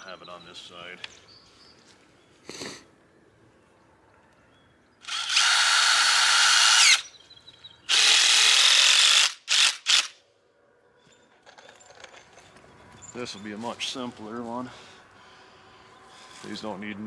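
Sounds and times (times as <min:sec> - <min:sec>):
cordless drill driving screw: 0:05.0 - 0:07.0, 0:07.9 - 0:10.1.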